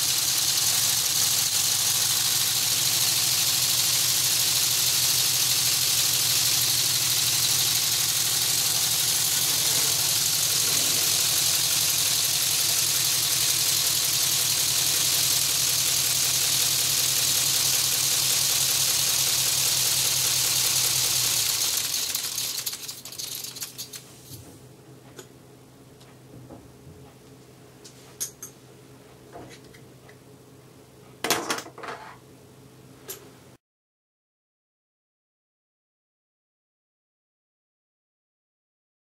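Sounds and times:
model engine clattering: 0:00.0 - 0:24.0.

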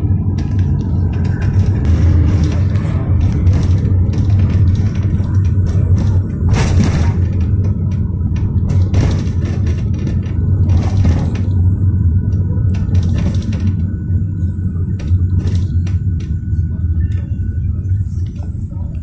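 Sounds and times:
minibus engine rumble: 0:00.0 - 0:19.0
road noise: 0:00.0 - 0:19.0.

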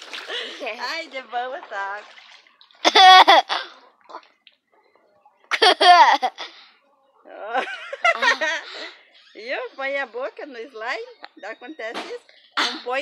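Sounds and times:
girl laughing loudly: 0:02.8 - 0:03.7, 0:05.5 - 0:06.5, 0:07.6 - 0:08.7.

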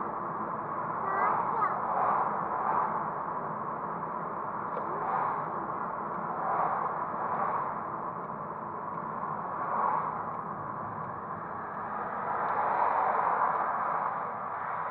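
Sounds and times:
road and tyre noise: 0:00.0 - 0:14.9.

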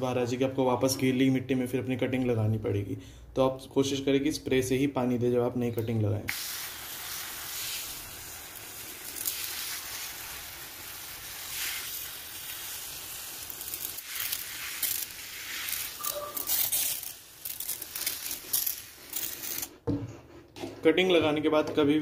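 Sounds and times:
spray bottle hissing: 0:06.3 - 0:19.6.

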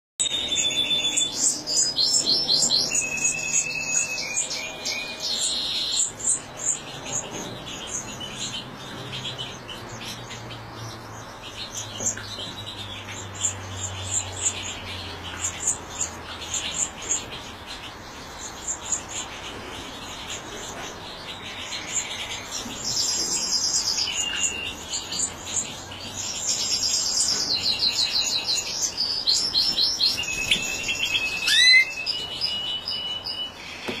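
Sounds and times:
finch twittering song: 0:00.2 - 0:34.0.

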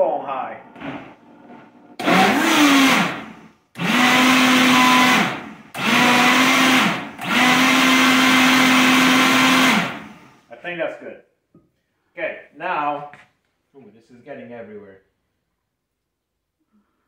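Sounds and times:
blender running on high: 0:02.0 - 0:10.3.

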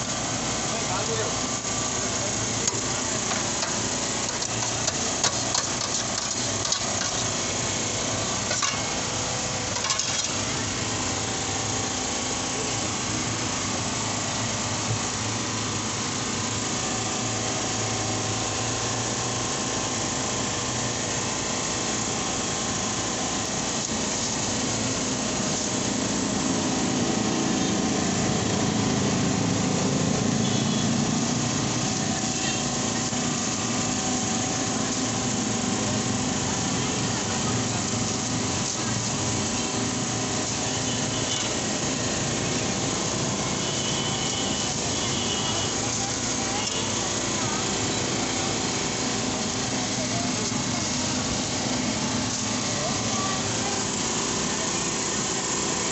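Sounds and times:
traffic engines: 0:00.0 - 0:55.9
knife and utensils on steel: 0:08.5 - 0:09.0, 0:09.8 - 0:10.4
distant chatter: 0:25.3 - 0:55.9.

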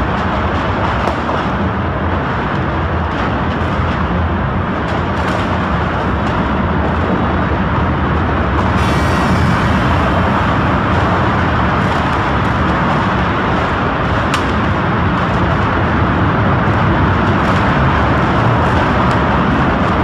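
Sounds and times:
fire engine engines rumbling: 0:01.7 - 0:20.0
rushing noise: 0:06.8 - 0:16.6
bright hiss: 0:08.7 - 0:12.0.

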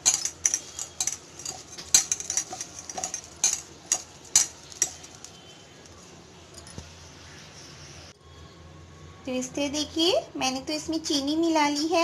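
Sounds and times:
spoon clinking in steel bowl: 0:00.0 - 0:05.4.

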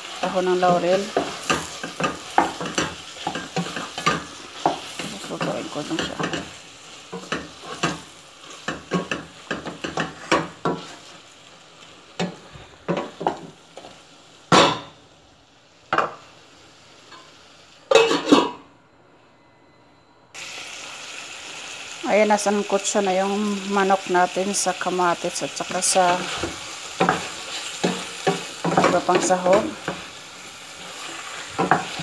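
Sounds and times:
frying sizzle: 0:00.0 - 0:18.4, 0:20.4 - 0:32.0.

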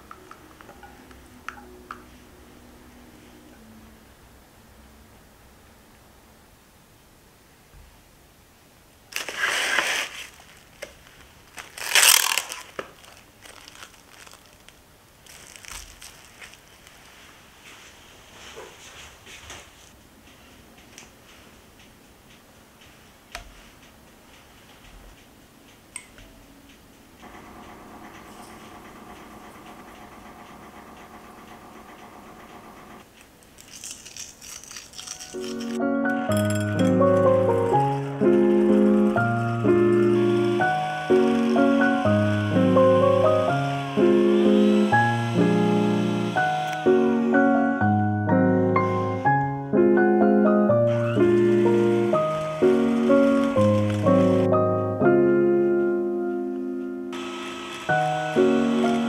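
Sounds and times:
cling wrap pulled from box: 0:09.1 - 0:18.9, 0:33.6 - 0:35.8
salt sprinkling crackles: 0:09.1 - 0:19.0, 0:33.1 - 0:37.6, 0:51.4 - 0:54.5
cling wrap crinkling: 0:09.1 - 0:20.0, 0:33.0 - 0:42.9, 0:50.9 - 0:54.8
sugar pouring into glass bowl: 0:33.6 - 0:37.8
soft background music: 0:35.1 - 0:59.0.

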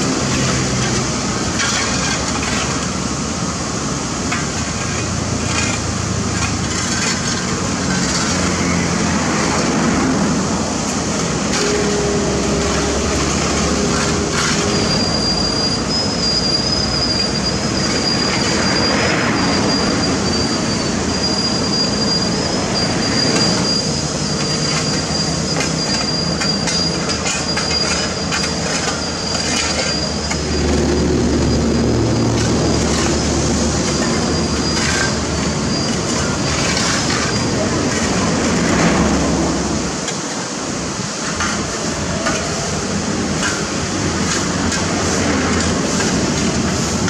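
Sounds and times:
diesel and hydraulic drone: 0:00.0 - 0:47.0
high-pitched squeal: 0:11.4 - 0:39.8.

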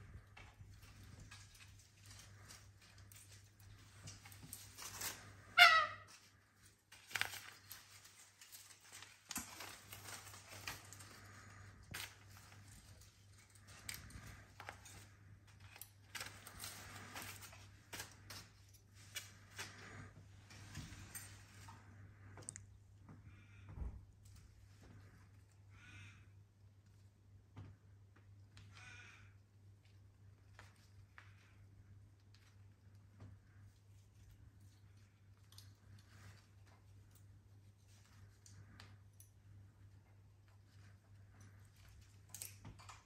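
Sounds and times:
rustling: 0:00.0 - 0:22.3
cockatoo squawk: 0:05.5 - 0:06.2.

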